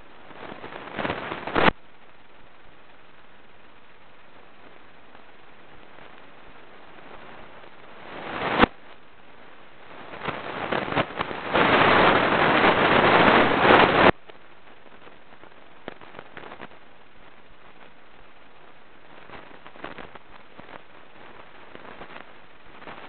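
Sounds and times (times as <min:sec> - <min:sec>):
crackling rustle: 0:00.0 - 0:23.0.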